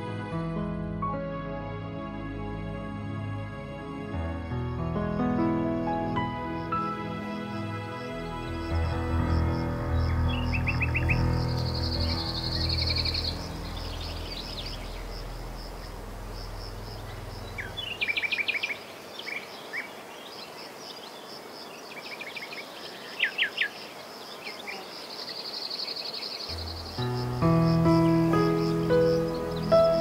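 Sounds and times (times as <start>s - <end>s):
soft ambient music: 0.0s - 18.9s, 26.5s - 30.0s
fast-pulsing insect trill: 6.1s - 19.0s, 25.0s - 30.0s.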